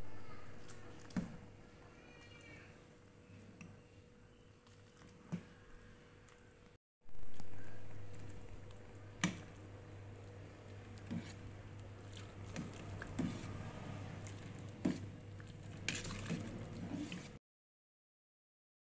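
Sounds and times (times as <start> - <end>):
ladle stirring soup in pot: 7.2 - 17.4.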